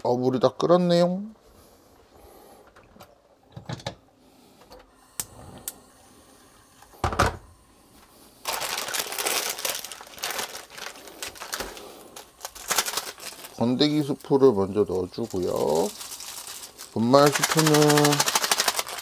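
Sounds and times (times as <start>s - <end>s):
plastic packet crinkling: 8.4s - 19.0s.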